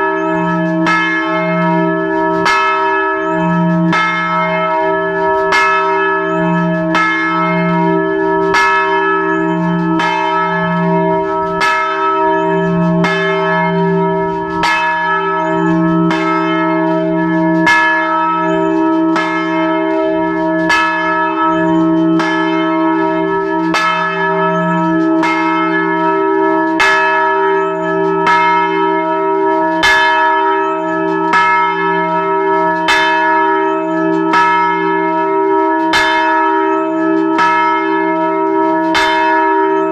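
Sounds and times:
large church bell ringing: 0.0 - 39.9.

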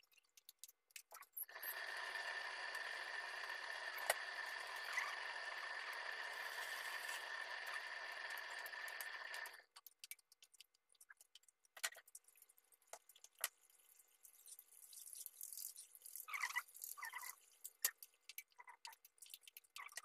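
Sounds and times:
sauce simmering hiss: 1.4 - 9.6.

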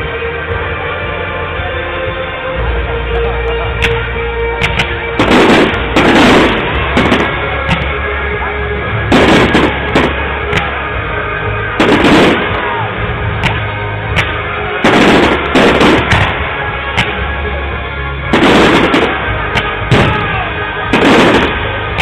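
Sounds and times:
background music: 0.0 - 22.0
firework shells bursting: 4.6 - 8.0, 13.4 - 17.2.

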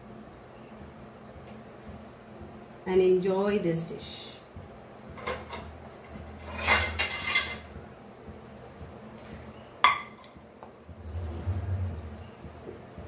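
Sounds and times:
dishes and cutlery clattering: 5.2 - 5.7, 6.4 - 7.7, 9.9 - 10.4.

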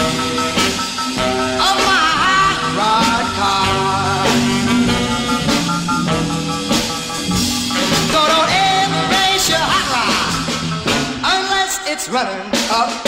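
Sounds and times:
rock and roll band playing: 0.0 - 13.0
person singing: 1.4 - 6.2, 7.6 - 13.0.

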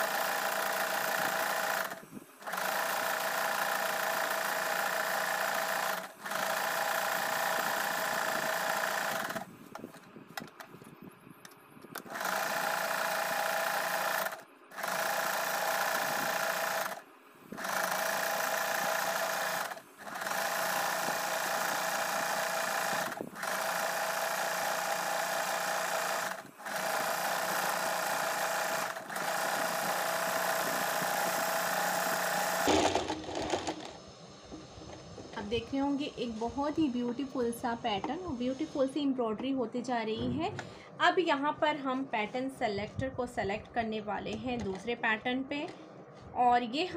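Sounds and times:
electric sewing machine running: 0.0 - 10.0, 12.0 - 34.1.

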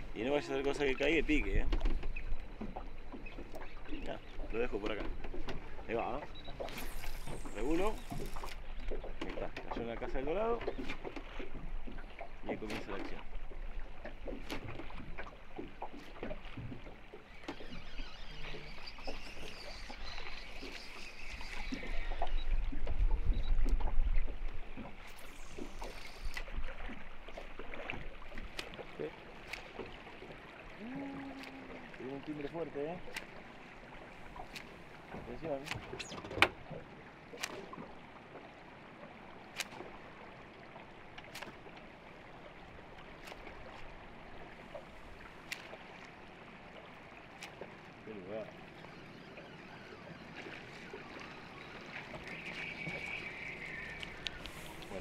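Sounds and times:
water lapping against boat hull: 0.0 - 55.0
lure popping and splashing: 6.5 - 9.8, 44.7 - 46.2
hiss of moving water: 52.4 - 55.0.

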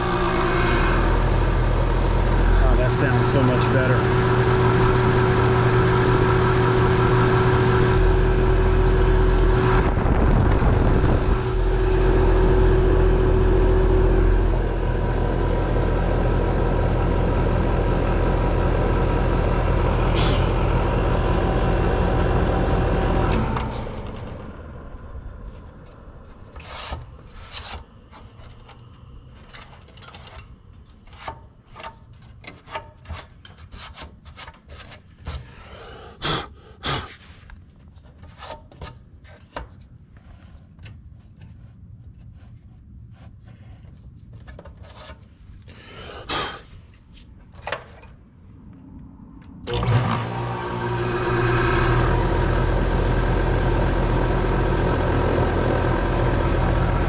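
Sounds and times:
heat pump fan humming: 0.0 - 33.5, 49.6 - 57.0.

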